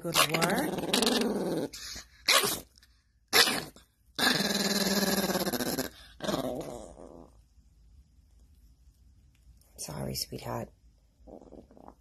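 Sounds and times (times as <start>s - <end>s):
small dog growling: 0.0s - 2.7s, 3.3s - 7.4s, 11.2s - 12.0s.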